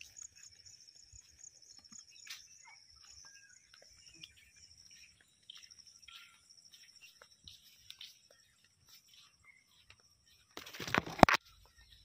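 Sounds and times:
footsteps: 0.0 - 12.0
high-pitched insect trill: 0.0 - 12.0.

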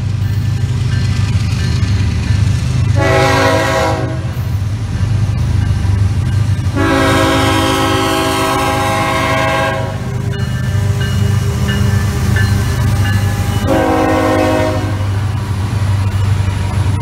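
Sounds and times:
low rumble of diesel train: 0.0 - 17.0
locomotive air horn blasts: 3.0 - 4.4, 6.7 - 10.1, 13.6 - 15.2.

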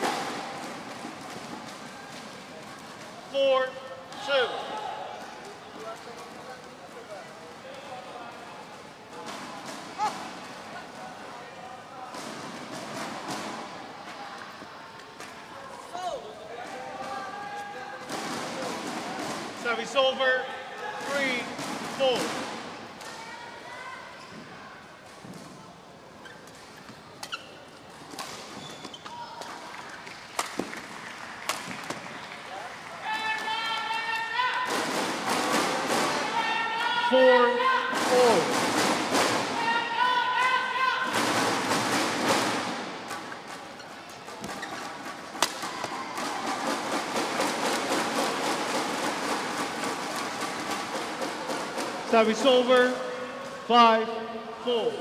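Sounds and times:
murmur of voices in hall: 0.0 - 55.0
shoes squeaking on floor: 26.1 - 29.5, 43.2 - 46.0
crowd din: 29.4 - 52.4
rackets hitting shuttlecock: 44.3 - 46.6
racket striking shuttlecock: 45.3 - 46.0.

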